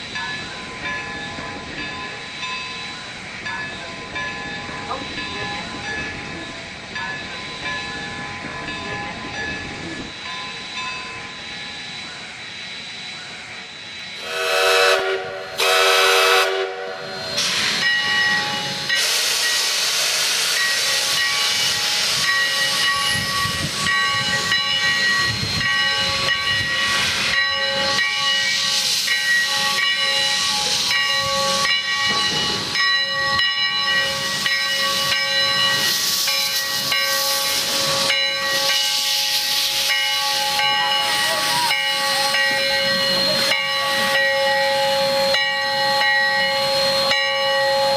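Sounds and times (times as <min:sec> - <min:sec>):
loud hiss of escaping steam: 0:00.0 - 0:47.9
steam whistle blasts: 0:14.2 - 0:17.7, 0:18.9 - 0:22.2.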